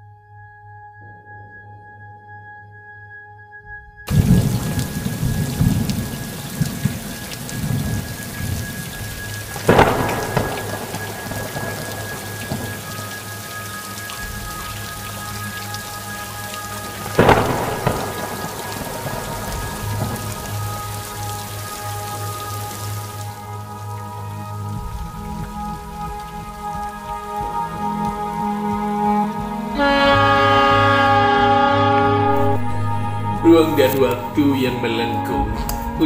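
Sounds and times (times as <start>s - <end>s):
thunder rumbling: 3.7s - 36.0s
sharp thunderclaps: 4.1s - 13.3s, 16.8s - 22.5s
steady rain: 4.1s - 36.0s.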